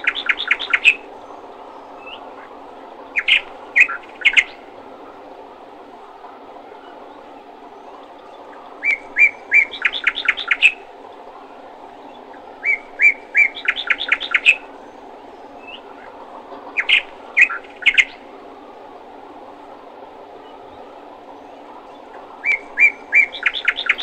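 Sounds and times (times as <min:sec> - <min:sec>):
small songbird singing: 0:00.0 - 0:04.7, 0:07.8 - 0:10.8, 0:12.0 - 0:16.1, 0:16.8 - 0:18.2, 0:20.4 - 0:24.0
low background noise: 0:00.0 - 0:24.0.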